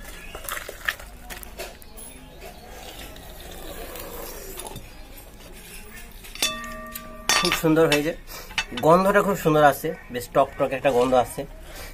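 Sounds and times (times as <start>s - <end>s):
metal rim clanking on metal: 6.2s - 9.3s.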